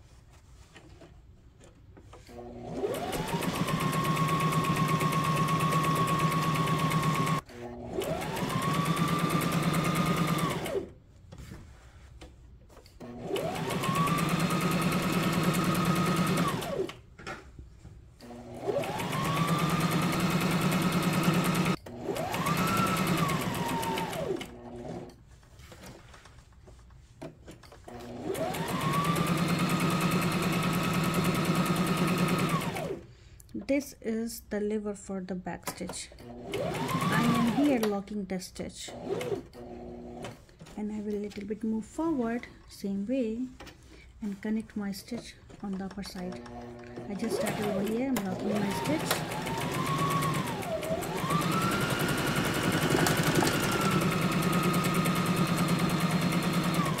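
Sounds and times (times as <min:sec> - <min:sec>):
sewing machine stitching: 0:02.2 - 0:11.0, 0:13.0 - 0:17.0, 0:18.2 - 0:25.2, 0:27.8 - 0:33.0, 0:36.2 - 0:38.0, 0:38.9 - 0:40.8, 0:45.2 - 0:57.0.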